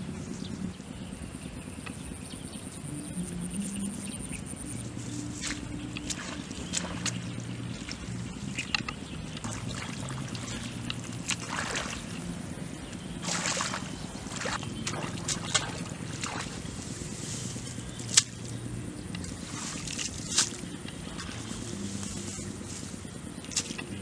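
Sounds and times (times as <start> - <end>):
low steady hum: 0.0 - 24.0
hands splashing in muddy water: 5.4 - 12.3, 13.2 - 16.8.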